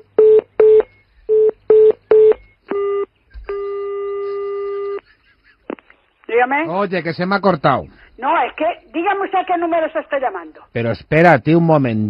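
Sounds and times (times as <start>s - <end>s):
phone keypad beeps: 0.0s - 5.0s
telephone ringing tone: 0.0s - 5.0s.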